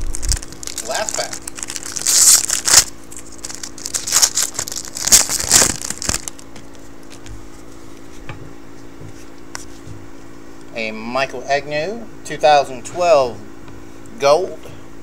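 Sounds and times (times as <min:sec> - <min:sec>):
foil wrapper crinkling: 0:00.0 - 0:07.3
cards being handled: 0:00.0 - 0:08.2.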